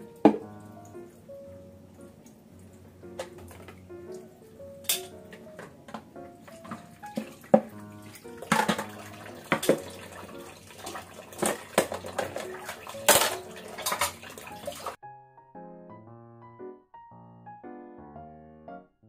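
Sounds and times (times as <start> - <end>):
water running from a tap: 0.0 - 15.0
piano music: 0.0 - 19.0
dishes clattering in a sink: 0.2 - 0.5, 3.2 - 3.9, 4.8 - 15.0.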